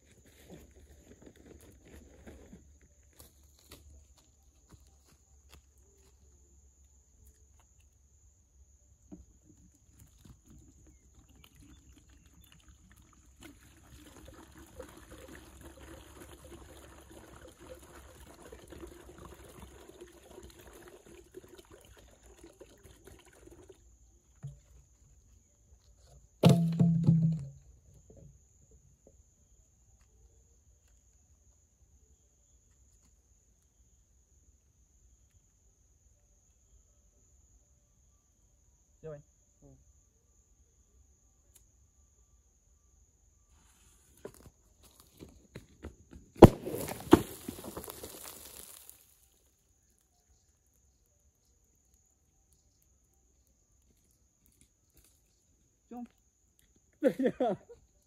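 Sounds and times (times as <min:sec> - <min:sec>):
water pouring into bucket: 0:10.9 - 0:24.5, 0:46.4 - 0:49.2.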